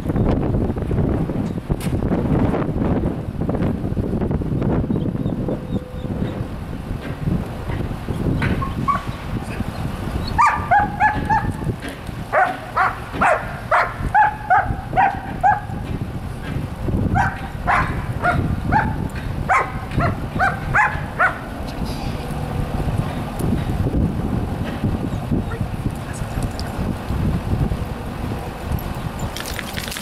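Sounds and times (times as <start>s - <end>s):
dog barking: 10.4s - 11.6s, 12.3s - 15.8s, 17.2s - 21.5s.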